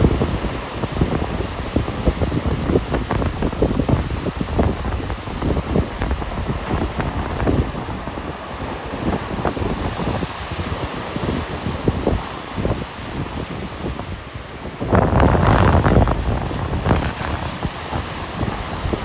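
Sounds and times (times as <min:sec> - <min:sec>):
ocean surf breaking: 0:00.0 - 0:19.0
wind buffeting microphone: 0:00.0 - 0:19.0.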